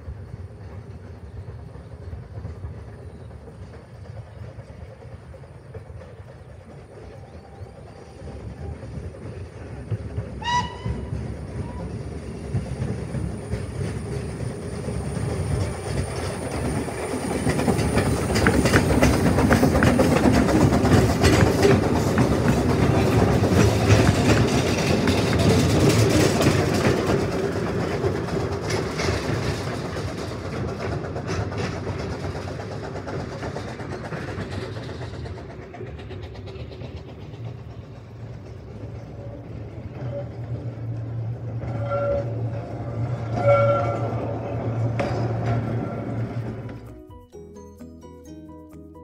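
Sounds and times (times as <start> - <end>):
steam train passing: 0.0 - 47.3
steam locomotive whistle: 10.4 - 11.9, 41.7 - 42.5, 43.2 - 44.3.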